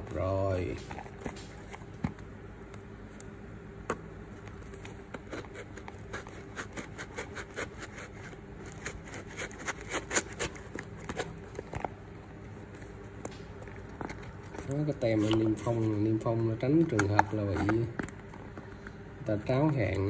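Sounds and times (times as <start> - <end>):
packaging being unwrapped: 4.5 - 11.9.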